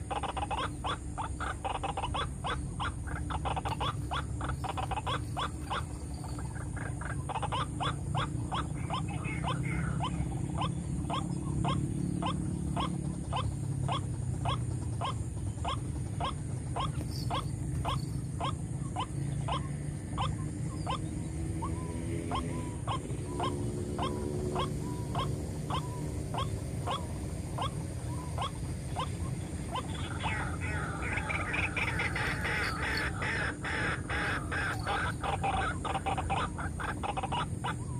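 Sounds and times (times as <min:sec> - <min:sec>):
bird calling sharp notes: 0:00.0 - 0:37.9
steady low rumble: 0:00.0 - 0:37.9.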